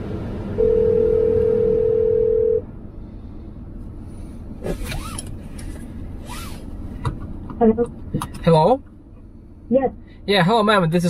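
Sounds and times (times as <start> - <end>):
telephone ringback tone: 0.6 - 2.6.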